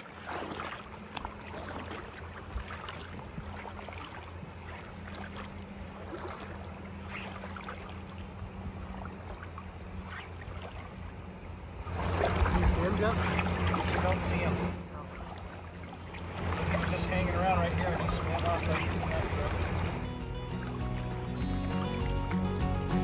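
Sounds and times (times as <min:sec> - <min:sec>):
low steady hum: 0:00.0 - 0:23.0
river water running: 0:00.0 - 0:23.0.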